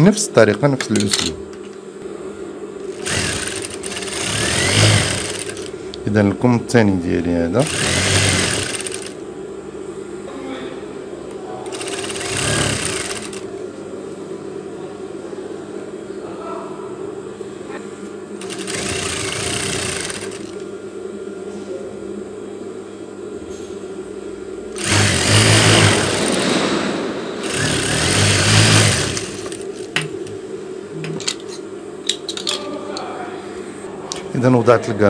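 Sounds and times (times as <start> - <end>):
steady hum: 0.0 - 35.0
sewing machine stitching: 2.9 - 5.7, 7.6 - 9.2, 11.7 - 13.4, 18.4 - 20.6, 24.8 - 26.6, 27.4 - 29.9.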